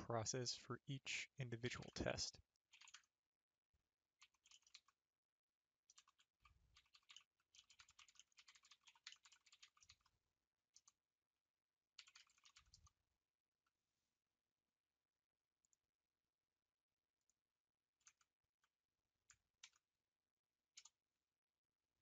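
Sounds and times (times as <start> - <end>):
computer keyboard typing: 5.9 - 10.1.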